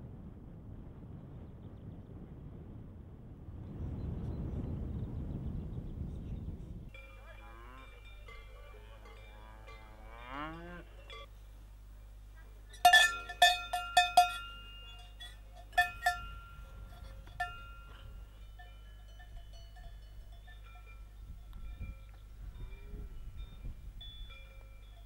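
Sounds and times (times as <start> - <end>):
cowbells clanking: 6.9 - 11.4, 12.7 - 25.0.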